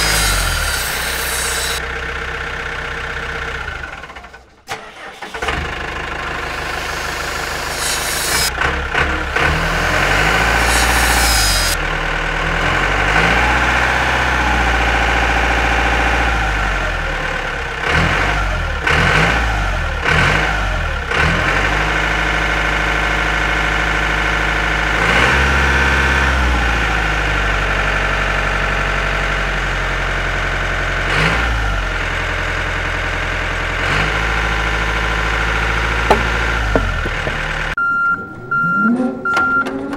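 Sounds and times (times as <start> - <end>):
hiss: 0.0 - 1.8, 6.4 - 8.5, 9.4 - 11.8
tractor engine revving: 0.0 - 29.6, 30.9 - 39.9.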